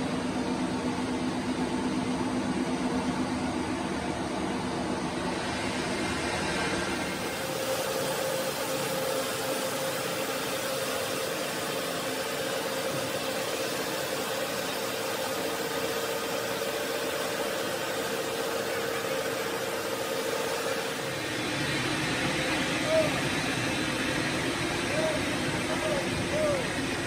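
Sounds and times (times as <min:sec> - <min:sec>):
mid-pitched machine hum: 0:00.0 - 0:27.0
stone-cutting machine hissing: 0:07.0 - 0:27.0.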